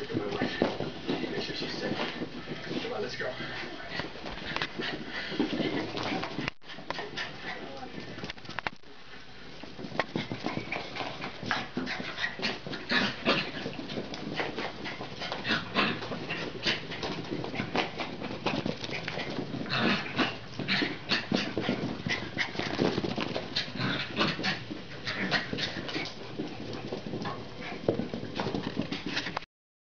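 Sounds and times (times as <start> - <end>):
small dog play barking: 10.2 - 26.1.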